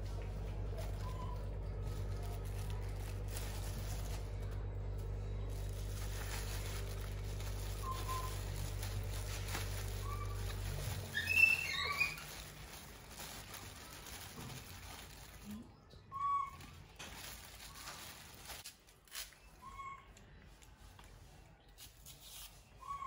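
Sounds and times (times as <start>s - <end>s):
low steady hum: 0.0s - 18.8s
short high chirps and squeaks: 11.1s - 12.3s.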